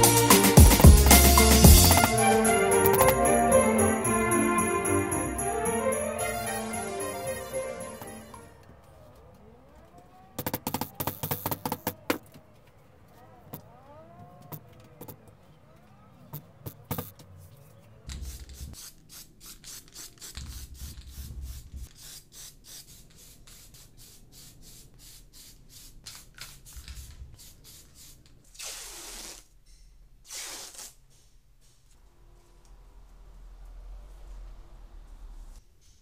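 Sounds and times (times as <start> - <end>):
quick scratchy strokes: 18.1 - 29.5, 30.2 - 31.3
hissing bursts: 18.1 - 29.6, 30.2 - 35.7.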